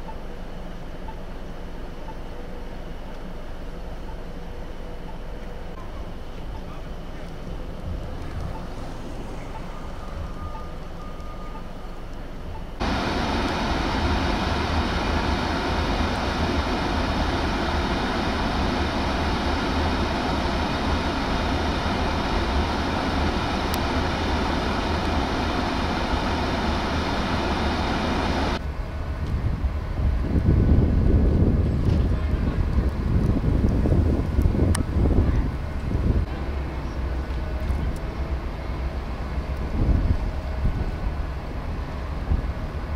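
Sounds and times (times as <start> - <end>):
low vehicle rumble: 1.4 - 42.9
wind rushing: 29.2 - 36.3.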